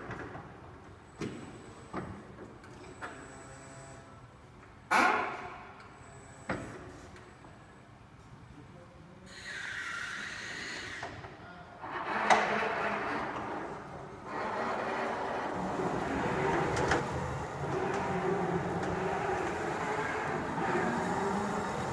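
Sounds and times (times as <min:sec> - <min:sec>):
electric truck motors whining: 0:13.4 - 0:21.9.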